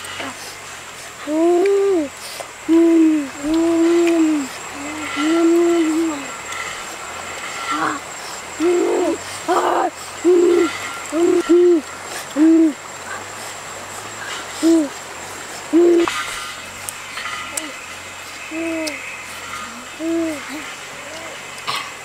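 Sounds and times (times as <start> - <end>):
hand-whistle owl-like hoots: 1.2 - 6.5, 8.6 - 12.8, 14.6 - 15.0, 15.7 - 16.2, 18.5 - 21.4.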